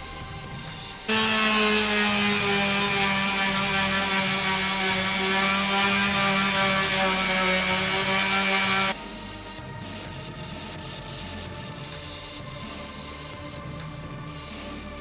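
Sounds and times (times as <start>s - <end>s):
power drill motor whining: 1.1s - 9.0s.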